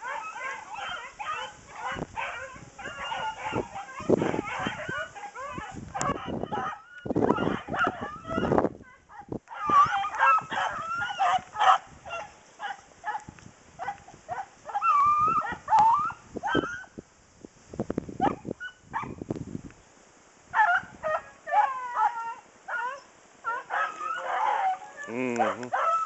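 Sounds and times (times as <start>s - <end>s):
dogs baying and yelping: 0.0s - 17.0s, 18.2s - 19.2s, 20.5s - 26.0s
wind on microphone: 1.1s - 19.8s, 20.5s - 21.3s.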